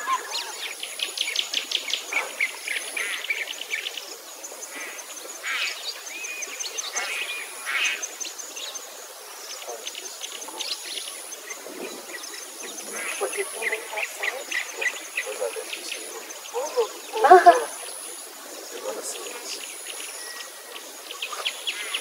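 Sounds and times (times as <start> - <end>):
birds chirping and singing: 0.0 - 4.0, 9.6 - 22.0.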